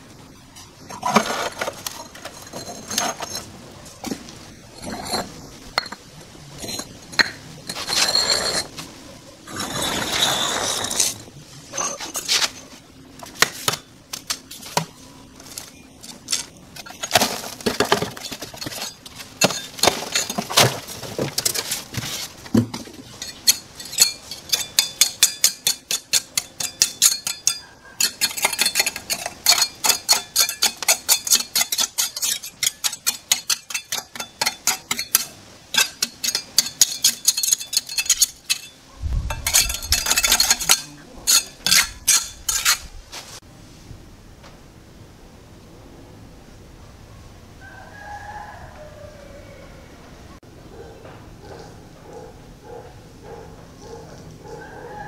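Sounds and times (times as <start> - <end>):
trowel scraping brick: 0.9 - 3.5, 6.6 - 8.8, 9.5 - 12.7, 23.1 - 43.4
trowel scraping concrete: 0.9 - 3.5, 7.7 - 8.8, 9.5 - 12.7, 23.2 - 38.7, 39.3 - 43.4.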